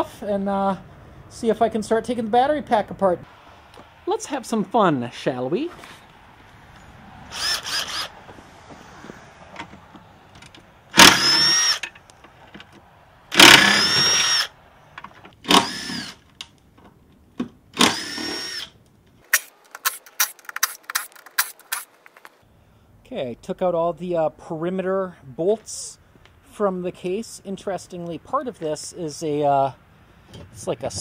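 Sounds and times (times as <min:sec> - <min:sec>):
power driver motor whine: 0:07.3 - 0:08.1, 0:10.9 - 0:11.8, 0:13.3 - 0:14.5, 0:17.8 - 0:18.7
sharp clicks and knocks: 0:19.0 - 0:22.4.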